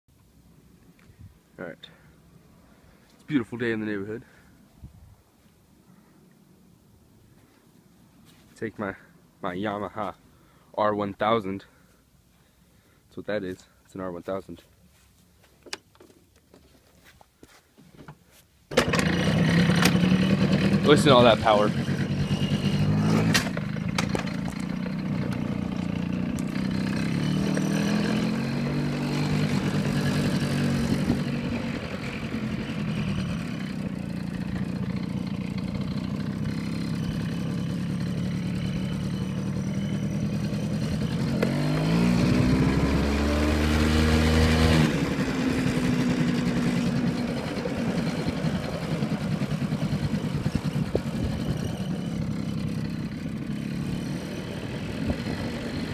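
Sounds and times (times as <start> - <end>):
motorbike engine revving: 18.7 - 55.9.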